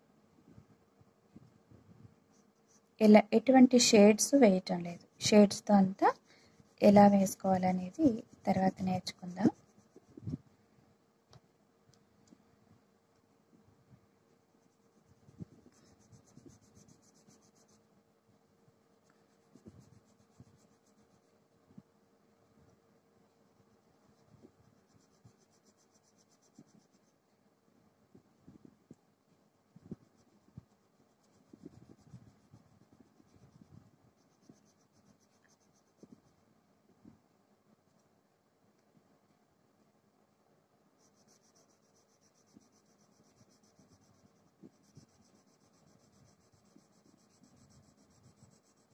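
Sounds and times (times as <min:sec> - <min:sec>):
crayon scratching on paper: 0:06.8 - 0:10.3, 0:14.4 - 0:17.8, 0:19.0 - 0:21.3, 0:23.6 - 0:27.2, 0:29.8 - 0:36.4, 0:41.0 - 0:48.9.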